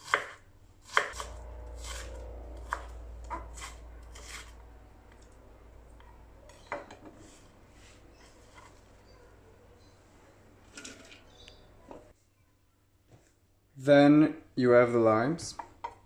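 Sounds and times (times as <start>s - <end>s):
knife chopping on wooden board: 0.0s - 4.5s.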